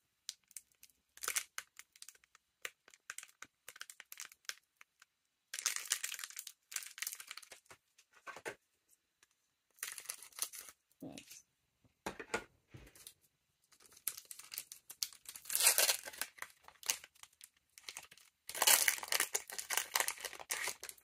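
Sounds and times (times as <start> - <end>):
foil wrapper crinkling: 13.8 - 21.0.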